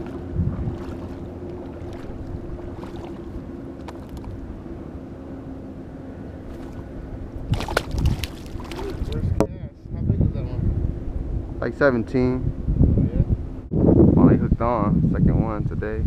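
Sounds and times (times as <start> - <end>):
wind buffeting microphone: 0.0 - 4.8, 6.4 - 16.0.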